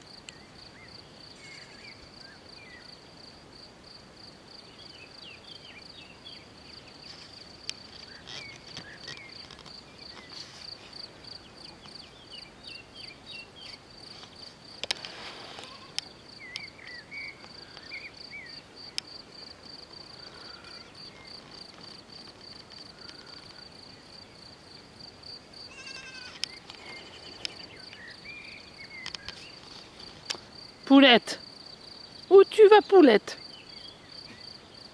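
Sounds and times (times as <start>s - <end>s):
insects chirring: 0.1s - 34.9s
short insect chirps: 0.2s - 3.0s, 25.6s - 32.3s.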